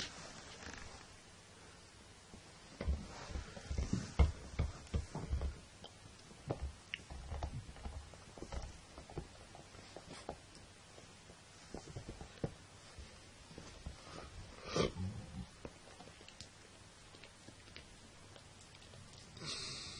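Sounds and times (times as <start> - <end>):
soft thumps and rustling on towel: 2.4 - 5.7, 6.3 - 14.5.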